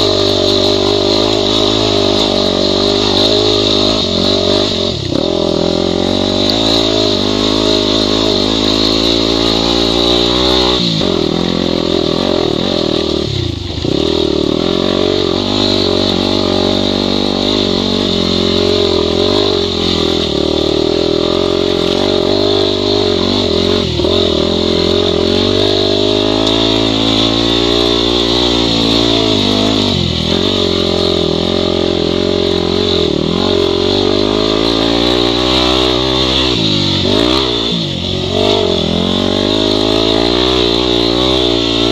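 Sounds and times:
dirt bike engine revving: 0.0s - 41.9s.

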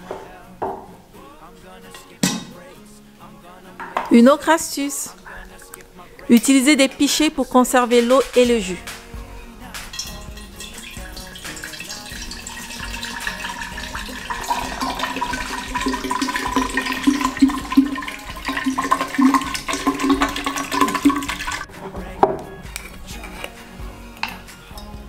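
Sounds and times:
juice pouring into glass pitcher: 9.9s - 22.5s.

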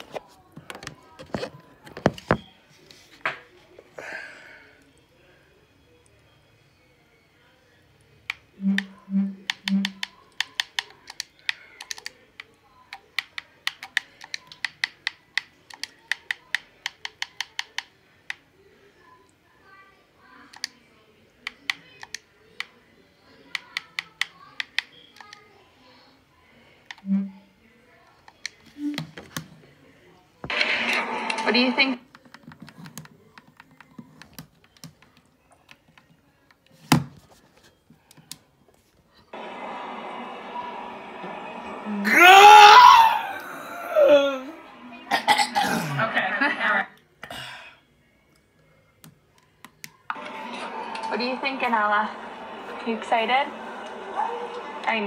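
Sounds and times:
keyboard and mouse clicks: 8.3s - 18.4s, 20.5s - 20.8s.

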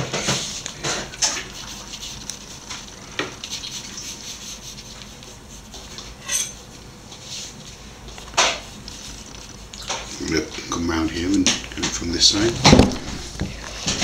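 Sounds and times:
pencil scratching on paper: 1.2s - 5.9s.

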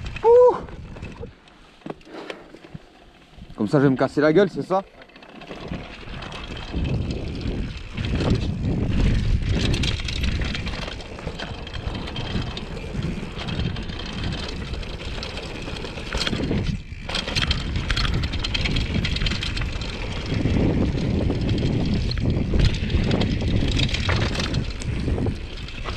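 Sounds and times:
bike clattering over rough ground: 0.0s - 25.9s
tyres rumbling on dirt: 3.6s - 25.9s
wind buffeting microphone: 5.6s - 25.9s.

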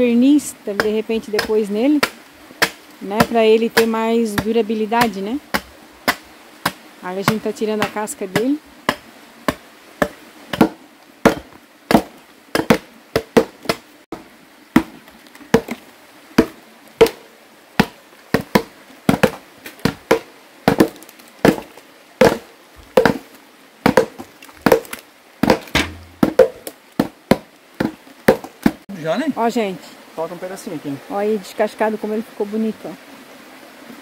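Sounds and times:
chopping blows on wooden stump: 0.8s - 13.8s, 16.4s - 17.2s, 17.8s - 23.2s, 23.8s - 28.8s.

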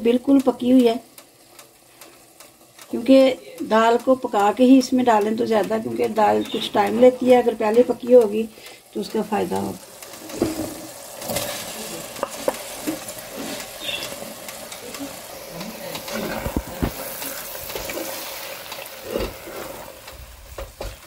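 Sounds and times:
steady sizzle: 0.0s - 21.0s
wooden spatula scraping pot: 10.1s - 20.0s.

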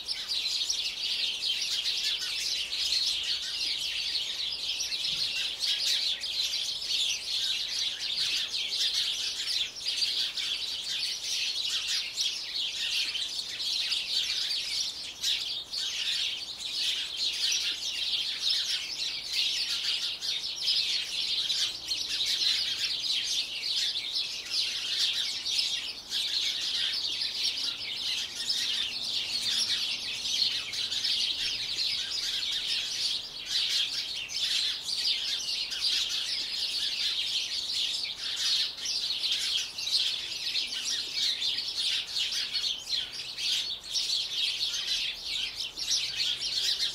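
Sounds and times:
small birds chirping: 0.0s - 46.9s.

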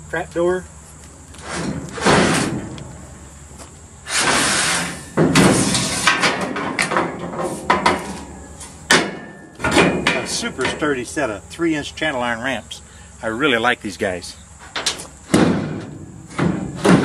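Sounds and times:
metal knocks and scrapes: 1.4s - 2.9s, 4.1s - 11.0s, 14.6s - 17.0s
metal ramp scraping and clanking: 1.4s - 3.0s, 4.0s - 11.0s, 14.6s - 17.0s
sharp metal clank: 8.9s - 10.9s.

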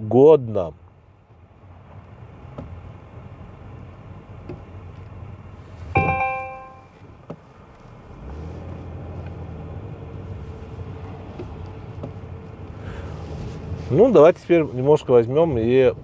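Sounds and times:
car engine and road rumble: 0.0s - 16.0s
bell-like chime: 6.0s - 6.9s.

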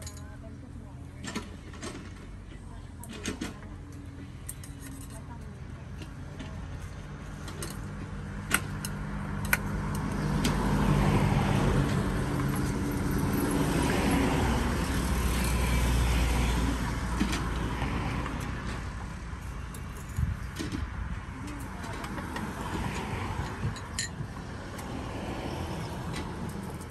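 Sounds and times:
vehicle engine passing by: 8.1s - 19.4s, 21.1s - 26.9s.

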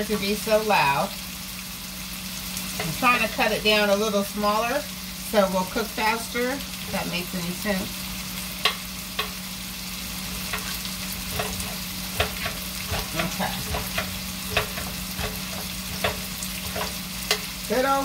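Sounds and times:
squash sizzling in oil: 0.0s - 18.0s
knife chopping on cutting board: 11.4s - 17.0s.

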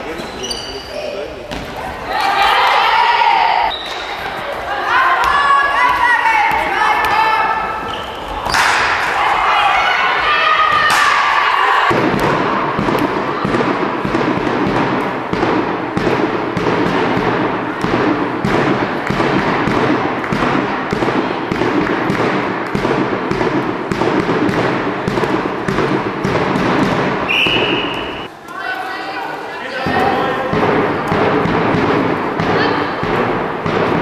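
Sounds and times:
crowd voices in sports hall: 0.0s - 34.0s
ball thumping: 11.9s - 28.3s, 29.8s - 34.0s
referee whistle blast: 27.3s - 28.3s.

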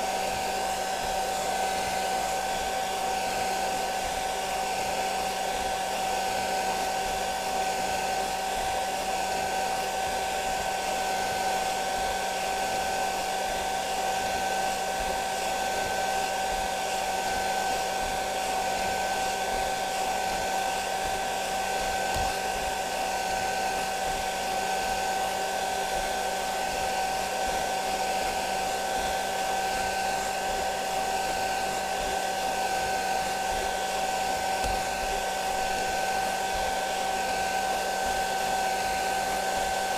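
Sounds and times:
hair dryer blowing: 0.0s - 39.9s.

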